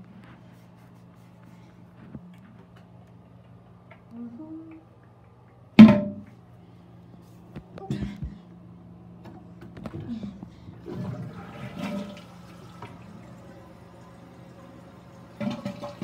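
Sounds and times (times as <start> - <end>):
toilet flushing: 10.7 - 16.0.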